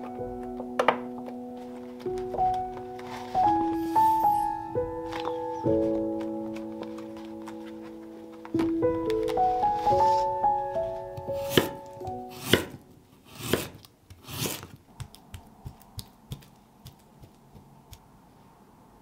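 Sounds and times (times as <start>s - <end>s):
soft piano notes: 0.0s - 13.1s
knife cutting vegetable: 11.3s - 17.4s.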